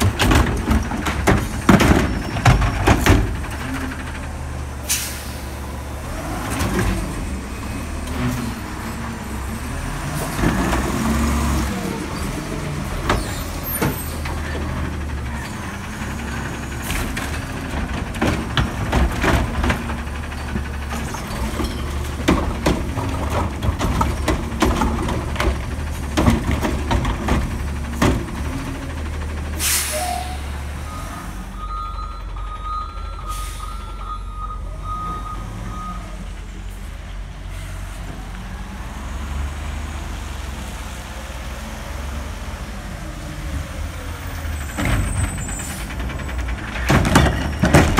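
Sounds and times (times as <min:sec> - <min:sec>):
clanks and clatter of recycling: 0:00.0 - 0:31.1, 0:41.4 - 0:47.9
garbage truck diesel engine: 0:00.0 - 0:47.9
air brake hiss: 0:04.9 - 0:05.5, 0:29.6 - 0:30.6, 0:33.3 - 0:33.8
reversing beeps: 0:30.0 - 0:36.2.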